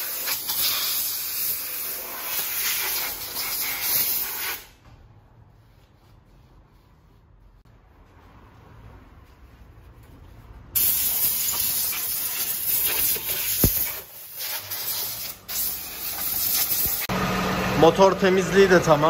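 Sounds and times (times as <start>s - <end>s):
hissing water spray: 10.8s - 17.1s.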